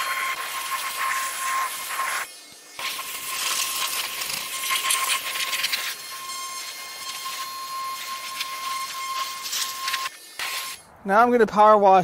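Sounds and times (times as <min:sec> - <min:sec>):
pressure washer spray hissing: 0:00.0 - 0:10.8
thin steady whine: 0:00.0 - 0:11.1.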